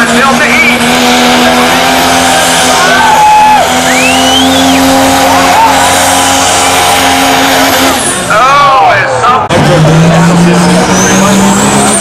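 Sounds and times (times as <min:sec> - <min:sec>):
diesel engine at high revs: 0:00.0 - 0:12.0
rising and falling whistle: 0:02.8 - 0:06.9.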